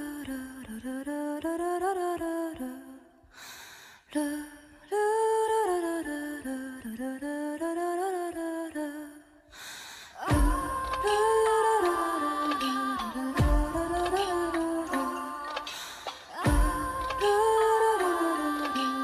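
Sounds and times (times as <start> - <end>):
hummed vocal melody: 10.2 - 19.0.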